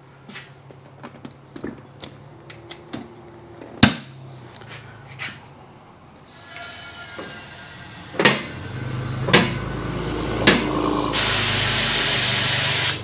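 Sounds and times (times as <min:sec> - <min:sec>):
hiss of air or spray: 0:11.1 - 0:13.0.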